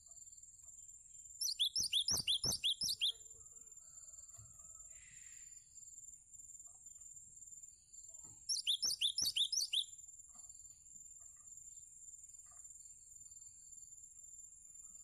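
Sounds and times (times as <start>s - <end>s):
bird chirping: 1.2s - 3.3s, 7.8s - 10.0s.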